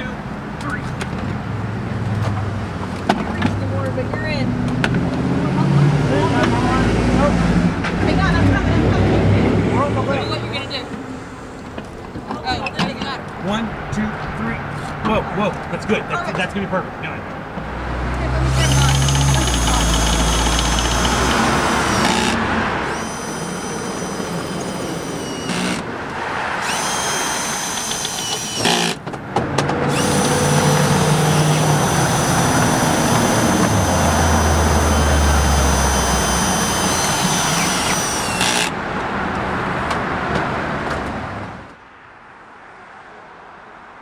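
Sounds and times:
street traffic: 0.0s - 44.0s
low vehicle rumble: 0.3s - 41.8s
cordless drill whining: 18.4s - 25.9s, 26.6s - 29.0s, 29.9s - 38.7s.

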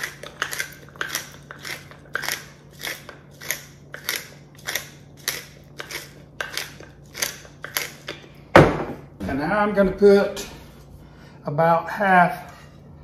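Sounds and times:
pepper mill grinding: 0.0s - 8.3s.

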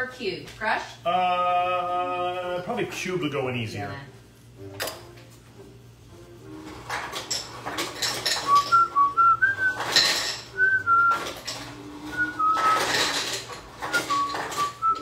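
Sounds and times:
ice cubes and glassware clinking: 6.9s - 9.1s, 9.7s - 15.0s
person whistling a tune: 8.5s - 9.9s, 10.6s - 11.3s, 12.1s - 12.9s, 13.9s - 15.0s.

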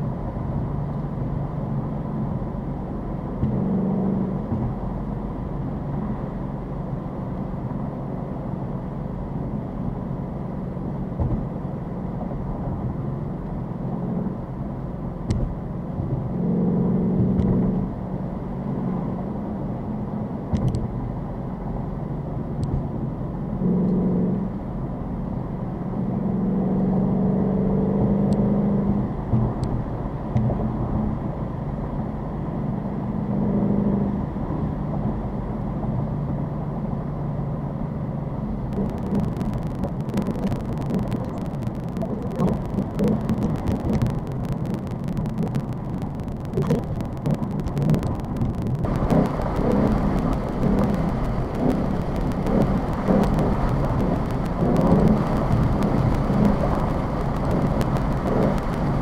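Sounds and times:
car engine revving: 3.1s - 6.8s, 10.9s - 18.0s, 23.4s - 24.9s, 38.0s - 59.0s.

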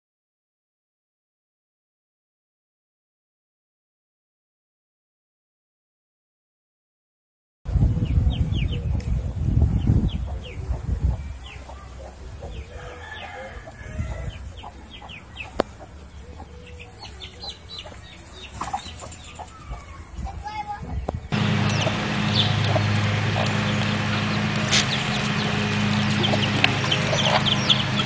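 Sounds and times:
chicks peeping: 7.7s - 28.0s
hen clucking: 7.8s - 28.0s
loud low rumble: 21.3s - 28.0s.

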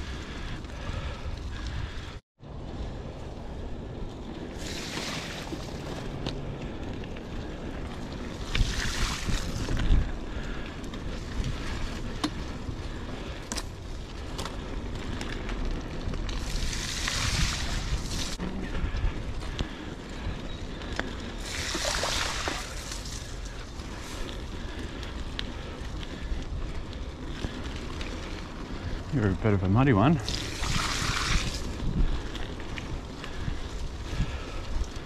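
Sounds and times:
bicycle tyre hiss: 0.0s - 29.2s, 30.2s - 35.0s
wind buffeting microphone: 0.0s - 35.0s
bike clicks and knocks: 7.8s - 12.6s, 13.2s - 16.5s.

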